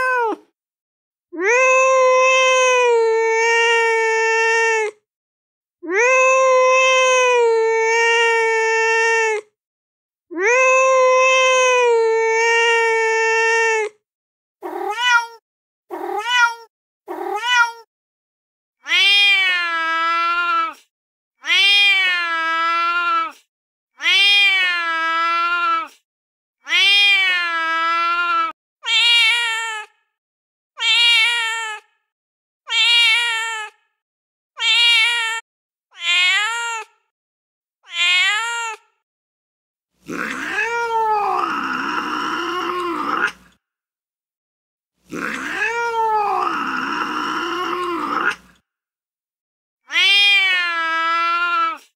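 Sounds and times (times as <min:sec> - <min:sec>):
cat meowing: 0:00.0 - 0:00.4, 0:01.4 - 0:05.0, 0:05.8 - 0:09.4, 0:10.3 - 0:13.9, 0:14.6 - 0:17.9, 0:18.8 - 0:20.8, 0:21.4 - 0:23.4, 0:24.0 - 0:25.9, 0:26.7 - 0:29.9, 0:30.8 - 0:31.8, 0:32.7 - 0:33.7, 0:34.6 - 0:37.0, 0:37.8 - 0:38.8, 0:40.1 - 0:43.5, 0:45.1 - 0:48.5, 0:49.9 - 0:51.9.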